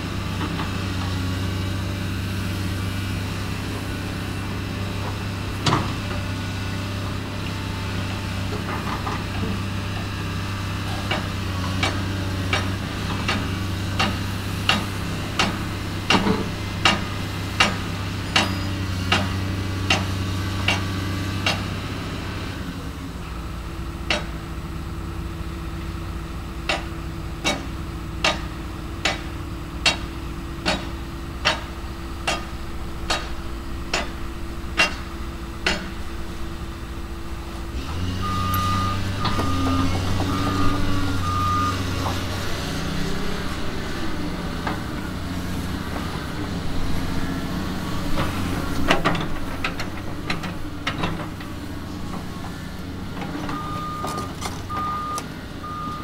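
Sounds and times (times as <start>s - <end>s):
heavy machinery rumbling: 0.0s - 56.0s
back-up alarm beeping: 38.1s - 41.9s, 53.5s - 56.0s.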